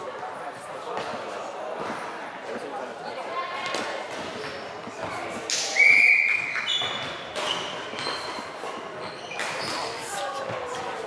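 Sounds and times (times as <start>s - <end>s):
faint high squeaks: 5.8s - 10.3s.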